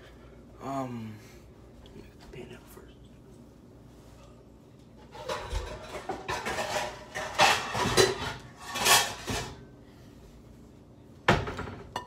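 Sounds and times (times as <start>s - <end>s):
pots and pans clattering: 5.0s - 9.7s, 11.3s - 12.0s.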